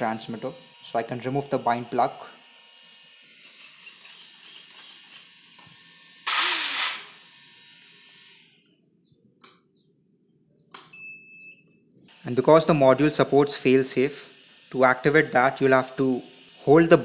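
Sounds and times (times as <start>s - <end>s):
rc car motor whirring: 0.0s - 8.6s, 12.1s - 17.0s.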